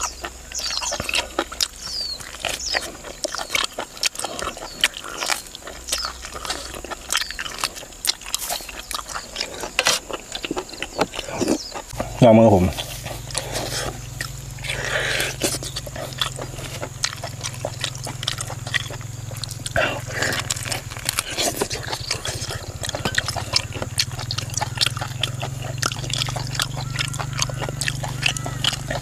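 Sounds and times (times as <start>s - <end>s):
low hum: 0.0s - 29.0s
meat torn and chewed: 0.0s - 29.0s.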